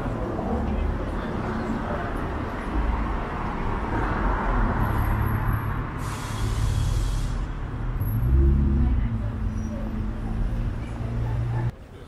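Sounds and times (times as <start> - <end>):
cars passing on cobblestones: 0.0 - 12.0
loud hiss: 6.0 - 7.5.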